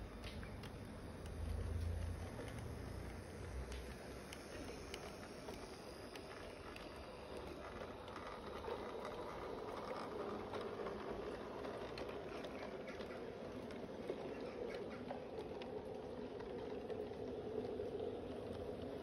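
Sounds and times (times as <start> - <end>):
small wheels rattling on track: 0.0 - 19.0
clicks over rail joints: 0.1 - 19.0.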